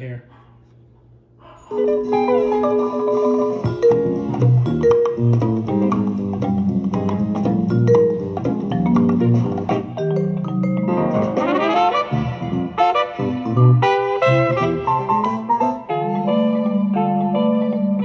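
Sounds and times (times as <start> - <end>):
vinyl record music: 1.7 - 18.0
melody of struck notes: 1.8 - 15.6
steady bass line: 3.6 - 15.5.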